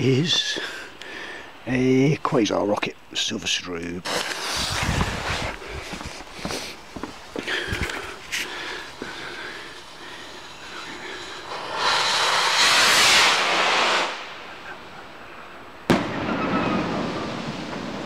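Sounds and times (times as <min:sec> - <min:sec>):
firework rocket rushing hiss: 0:04.0 - 0:07.4, 0:08.1 - 0:18.0
firework bang: 0:11.5 - 0:14.5, 0:15.9 - 0:18.0.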